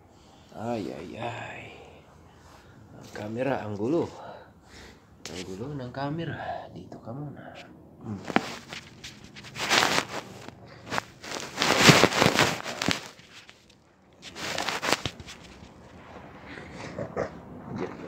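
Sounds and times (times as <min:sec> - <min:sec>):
phone rustling and scraping on carpet: 0:08.2 - 0:16.1.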